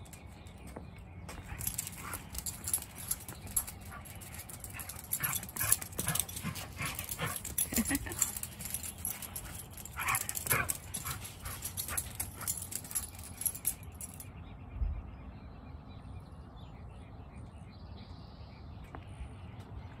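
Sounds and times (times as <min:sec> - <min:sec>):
paws scuffling and clicking: 0:00.0 - 0:14.2
dogs yelping: 0:01.4 - 0:14.2.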